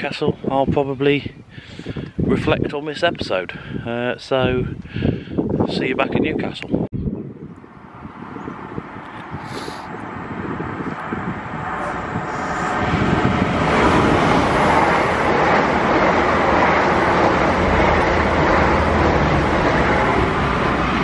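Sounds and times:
train passing at speed: 0:07.8 - 0:21.0.

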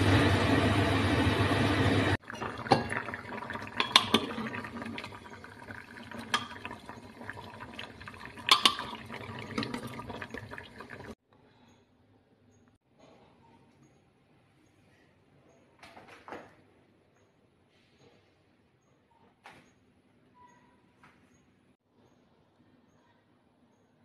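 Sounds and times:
pressure cooker venting steam: 0:00.0 - 0:11.2.

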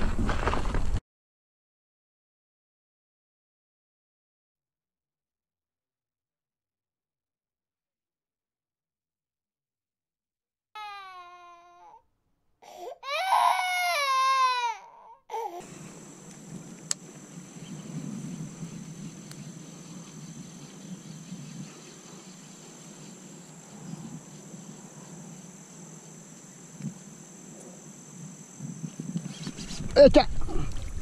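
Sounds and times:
outdoor background noise: 0:00.0 - 0:01.0, 0:13.0 - 0:31.0.

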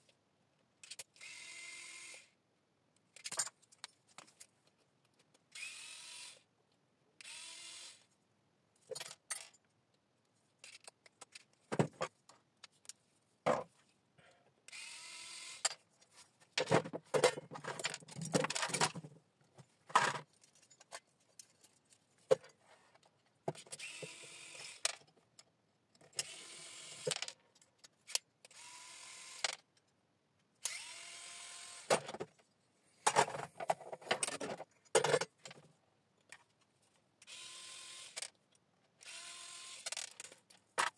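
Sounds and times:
small metal parts clinking: 0:08.8 - 0:09.6
electric screwdriver running: 0:28.5 - 0:29.5, 0:30.7 - 0:31.9, 0:37.3 - 0:38.2, 0:39.0 - 0:39.9.

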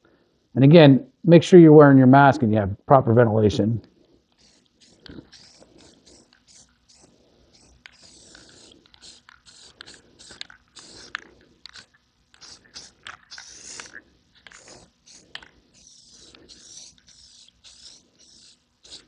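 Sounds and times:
aerosol can spraying: 0:04.2 - 0:19.0.

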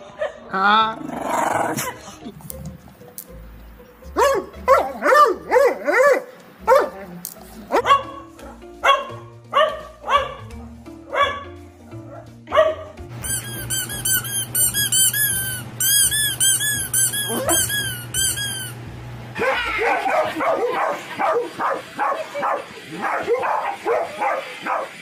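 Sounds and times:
dog barking: 0:04.2 - 0:07.0, 0:07.7 - 0:13.0, 0:17.2 - 0:17.8, 0:19.4 - 0:25.0
fast high squeaks: 0:13.2 - 0:18.9.

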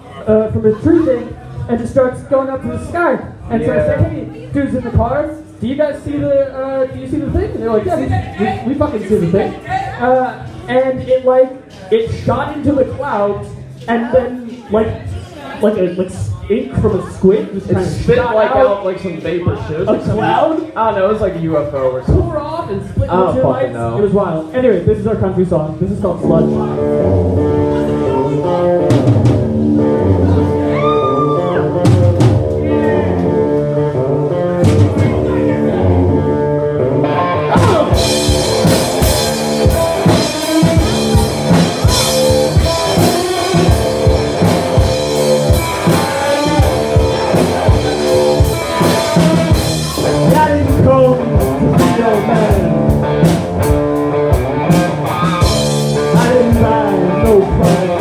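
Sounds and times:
live band playing: 0:25.7 - 0:58.0
electric guitar chords: 0:26.2 - 0:58.0
drum kit beat: 0:26.3 - 0:58.0.

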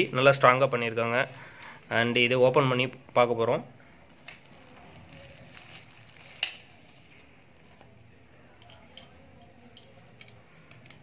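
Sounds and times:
plastic rustling: 0:04.1 - 0:08.0.

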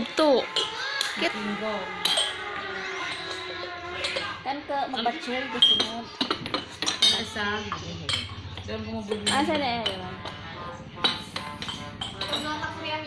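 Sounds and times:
porcelain teacups clinking: 0:00.5 - 0:01.2, 0:02.0 - 0:04.4, 0:05.6 - 0:10.4, 0:11.0 - 0:12.8.

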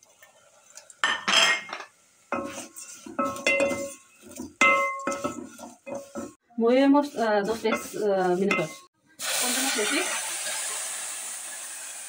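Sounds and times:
spoon stirring noodles in pot: 0:02.3 - 0:08.9
wooden spoon knocking metal pot: 0:03.1 - 0:06.4, 0:07.3 - 0:08.9.

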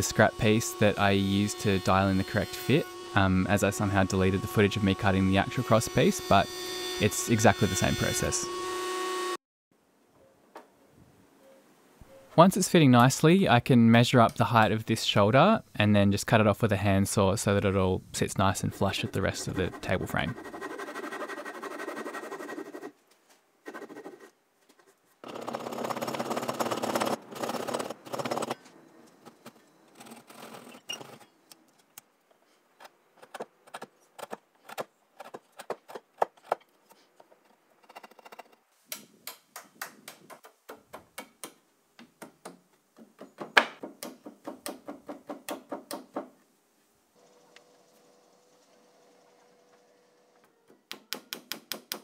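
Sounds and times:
saw cutting wood: 0:00.0 - 0:09.4, 0:18.9 - 0:22.9, 0:25.2 - 0:28.6.

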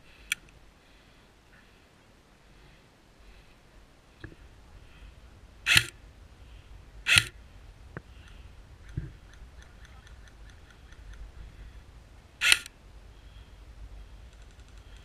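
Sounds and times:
airsoft rifle shots: 0:05.7 - 0:05.9, 0:07.1 - 0:07.4, 0:12.4 - 0:12.7.

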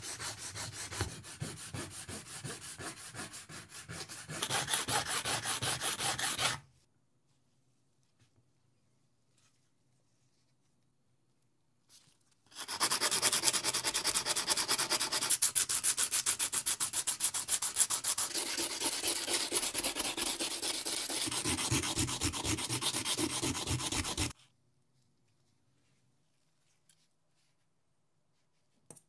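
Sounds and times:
sanding sponge scrubbing shell: 0:12.6 - 0:24.4.

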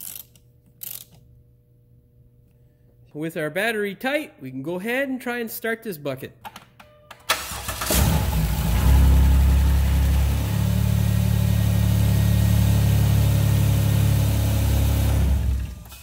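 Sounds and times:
car engine starting and idling: 0:07.3 - 0:16.0.

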